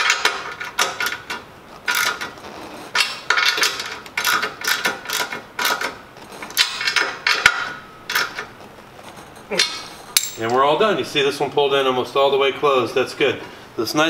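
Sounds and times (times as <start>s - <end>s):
ratchet clicking: 3.0s - 7.5s.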